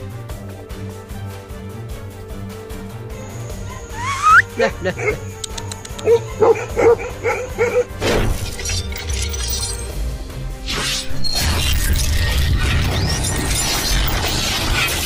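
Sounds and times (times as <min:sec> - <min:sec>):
background music: 0:00.0 - 0:15.0
dog barking: 0:03.9 - 0:08.0
shatter sound effect: 0:08.0 - 0:15.0.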